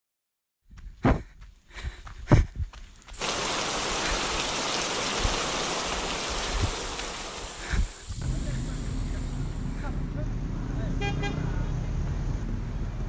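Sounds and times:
heavy rain: 0:03.2 - 0:09.9.

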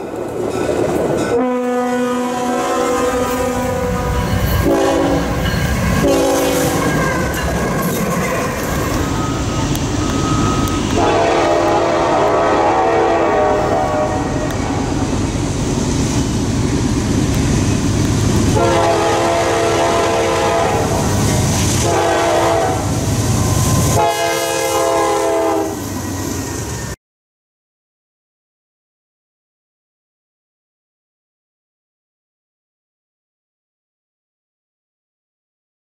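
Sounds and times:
train engine rumble: 0:00.0 - 0:27.0
locomotive air horn blasts: 0:01.3 - 0:07.4, 0:10.9 - 0:14.9, 0:18.5 - 0:23.0, 0:23.8 - 0:26.0.

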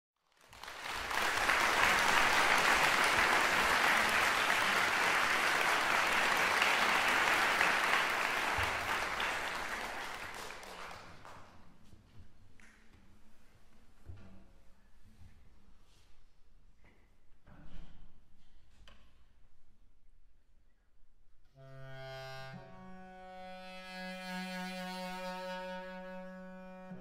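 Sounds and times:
audience applauding: 0:00.3 - 0:11.5.

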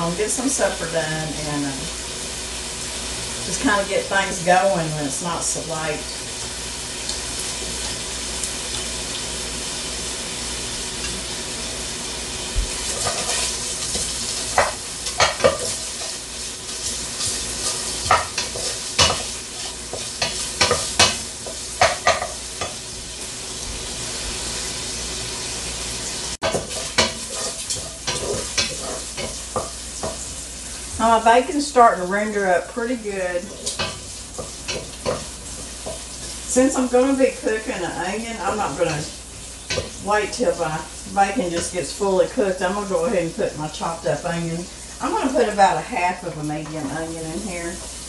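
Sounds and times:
bacon sizzling in a pot: 0:00.0 - 0:48.0
wooden spoon scraping a pot: 0:12.7 - 0:22.8, 0:26.4 - 0:31.0, 0:33.3 - 0:36.6.

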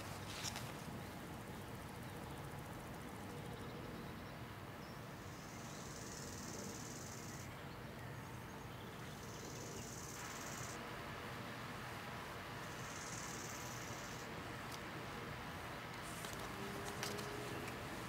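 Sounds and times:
night insects trilling: 0:05.2 - 0:07.4, 0:09.1 - 0:10.8, 0:12.6 - 0:14.4.

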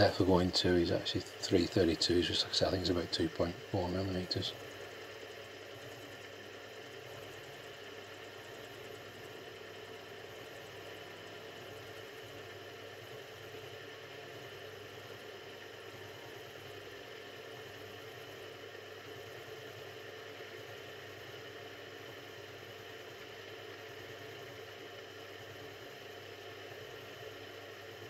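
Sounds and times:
milling machine humming: 0:00.0 - 0:28.0.

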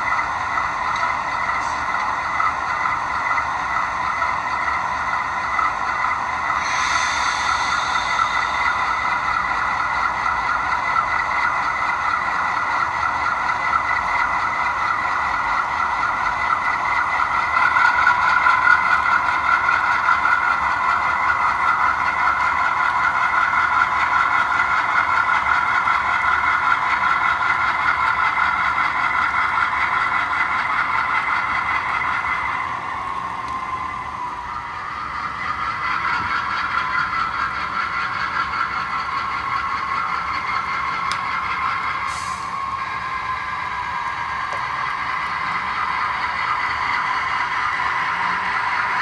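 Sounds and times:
model diesel engine sound from speaker: 0:00.0 - 0:49.0.

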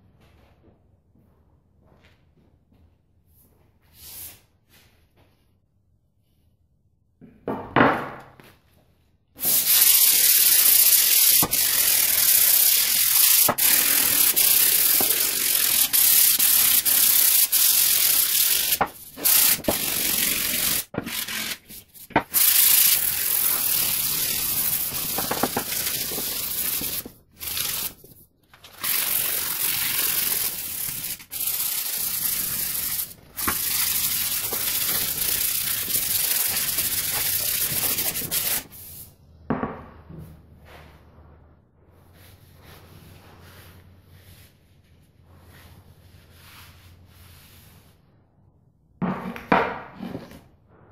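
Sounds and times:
sandpaper sanding wood: 0:09.4 - 0:39.0.

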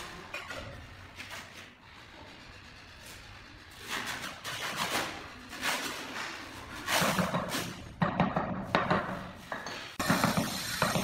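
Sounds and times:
hand tool scraping on tiles: 0:03.8 - 0:07.8.

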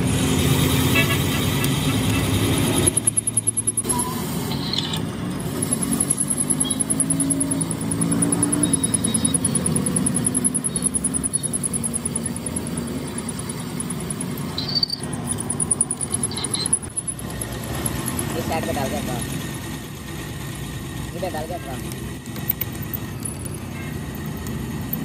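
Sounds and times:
drill press bit cutting steel: 0:01.7 - 0:19.2.

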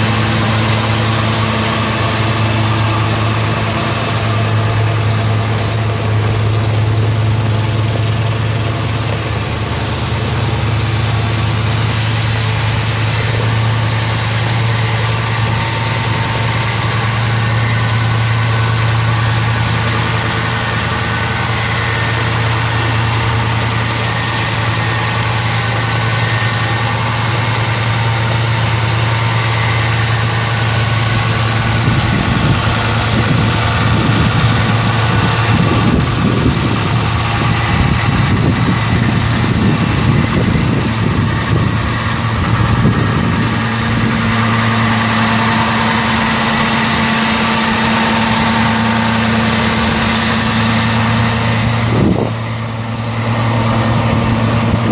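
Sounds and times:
diesel tractor engine idling: 0:00.0 - 0:54.9.

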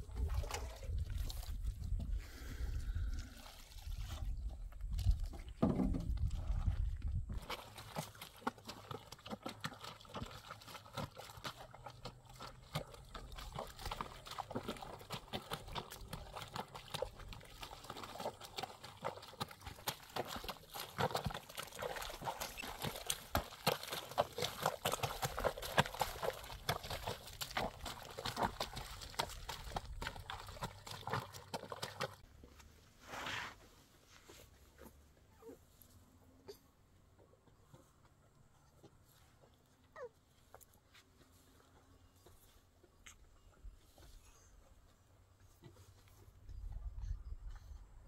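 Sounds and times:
wet cloth squelching and sloshing: 0:00.0 - 0:05.6, 0:06.2 - 0:32.3.

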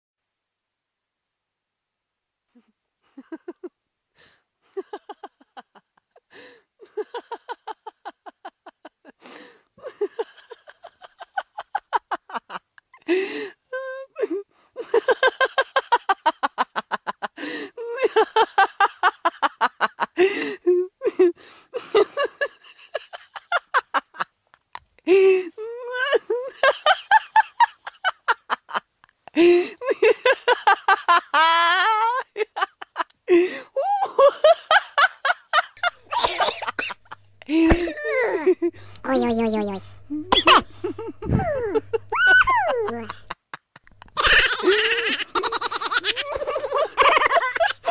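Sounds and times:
cackling laughter: 0:03.2 - 0:03.7, 0:04.8 - 0:13.3, 0:14.0 - 0:24.3, 0:25.8 - 0:39.0, 0:40.2 - 0:47.9
noisy in-breath: 0:09.2 - 0:09.7, 0:13.1 - 0:13.6
high-pitched cackling laughter: 0:29.8 - 0:33.1, 0:33.8 - 0:39.0, 0:40.2 - 0:47.9.

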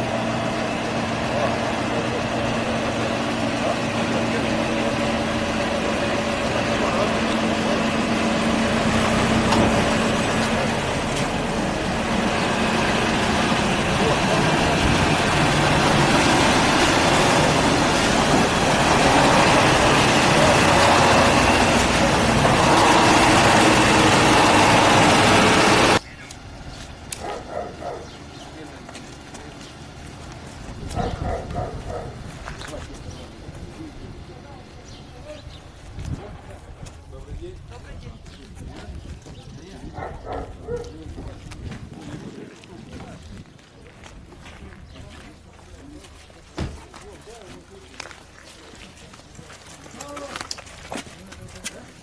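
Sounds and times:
heavy trucks driving past: 0:00.0 - 0:36.7.

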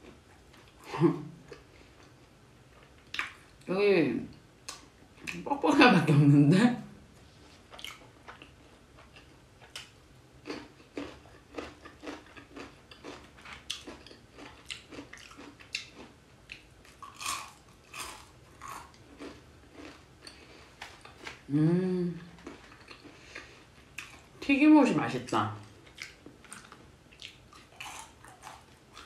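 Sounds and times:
person chewing fried chicken: 0:07.5 - 0:21.4, 0:22.2 - 0:24.4, 0:25.6 - 0:29.0
person humming mm: 0:21.5 - 0:22.4.

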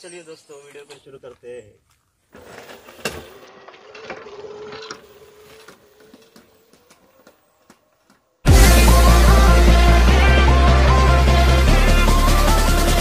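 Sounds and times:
rolling rattle: 0:02.3 - 0:08.4
electric scooter motor whining: 0:02.3 - 0:11.8.

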